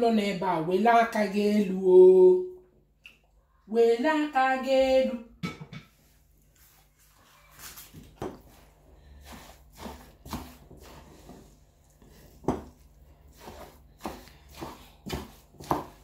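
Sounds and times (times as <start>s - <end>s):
spoon scraping a pot: 7.6s - 16.0s.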